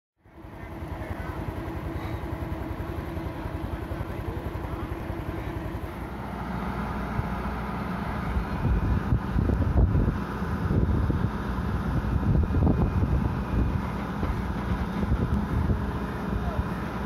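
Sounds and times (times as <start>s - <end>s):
diesel engine idling: 0.2s - 17.0s.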